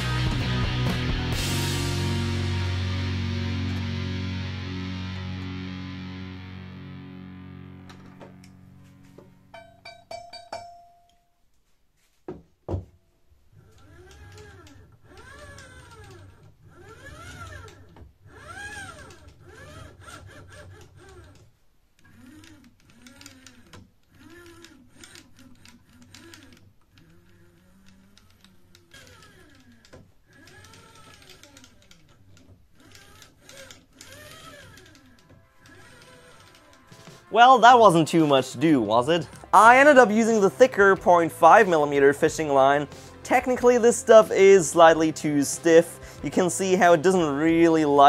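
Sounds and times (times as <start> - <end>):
metallic tool clinks: 9.5 - 11.3.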